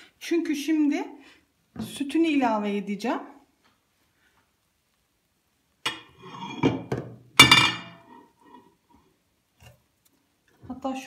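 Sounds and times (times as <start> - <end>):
cookware clinking and knocking: 5.9 - 8.3.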